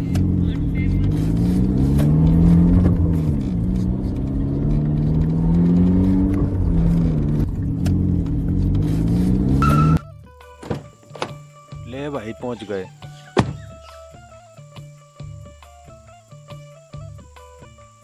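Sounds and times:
car engine running: 0.0 - 10.0.

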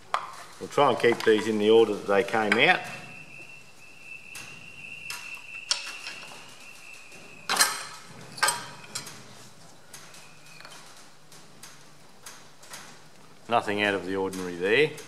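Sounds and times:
metallic clicks and knocks: 0.1 - 1.9, 7.1 - 15.0
faint high whine: 0.7 - 10.9.

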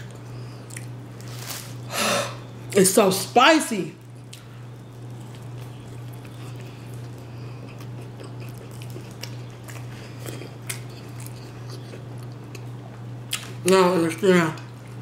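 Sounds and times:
biting and chewing food: 0.0 - 1.9, 4.0 - 13.8
steady low hum: 0.0 - 15.0.

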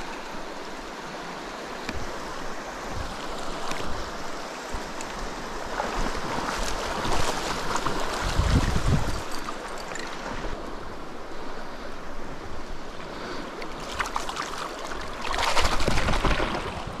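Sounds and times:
river water rushing over gravel: 0.0 - 11.2, 12.7 - 17.0
wind buffeting microphone: 1.9 - 11.0
water splashing: 4.7 - 10.6, 13.6 - 17.0.

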